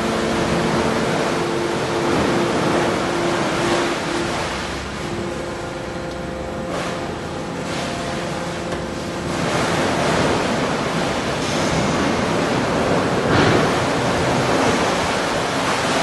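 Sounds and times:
humming tone: 0.0 - 16.0.

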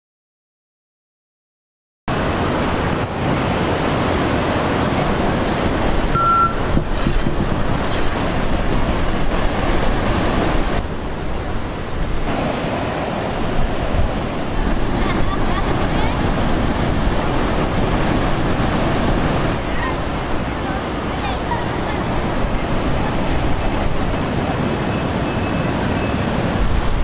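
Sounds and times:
loud rushing outdoor noise: 2.1 - 27.0
brief high beep: 6.1 - 6.7.

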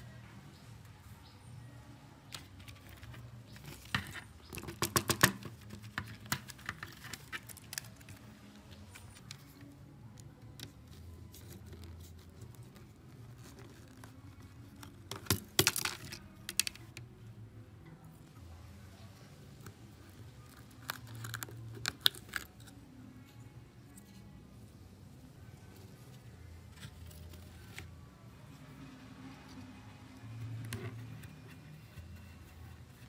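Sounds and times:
plastic keypad parts clicking: 14.8 - 17.0.

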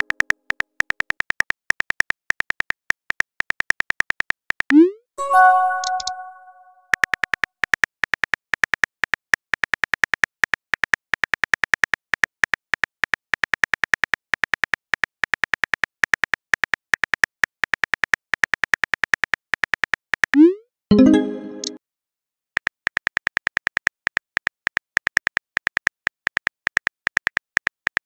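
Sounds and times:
phone keyboard typing clicks: 5.4 - 6.4.

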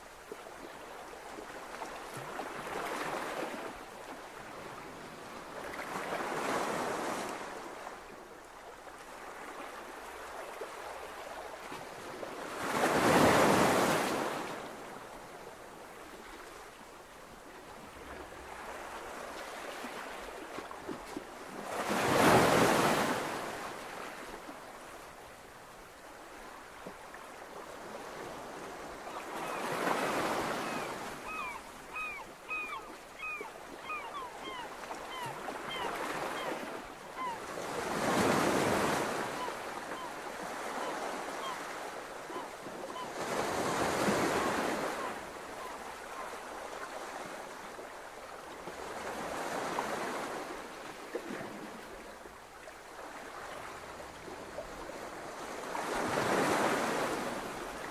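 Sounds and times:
ocean surf on beach: 9.0 - 15.3, 17.9 - 24.6, 34.8 - 47.8, 53.0 - 57.9.

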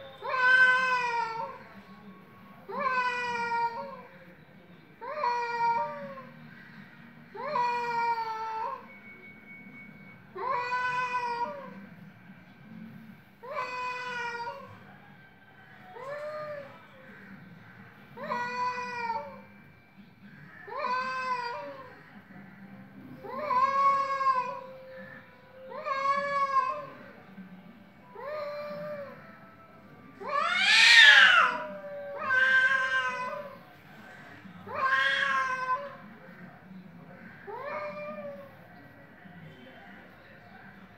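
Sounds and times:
cats yowling: 0.1 - 1.7, 2.7 - 4.1, 5.0 - 6.4, 7.3 - 8.9, 10.4 - 11.8, 13.4 - 14.9, 15.8 - 16.8, 18.2 - 19.5, 20.5 - 22.0, 23.2 - 27.2, 28.1 - 29.4, 30.1 - 36.2, 37.4 - 38.7.

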